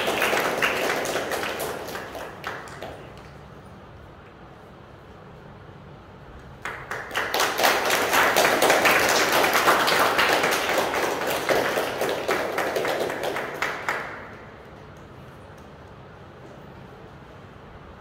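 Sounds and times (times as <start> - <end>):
audience applauding: 0.0 - 3.4, 6.6 - 14.8.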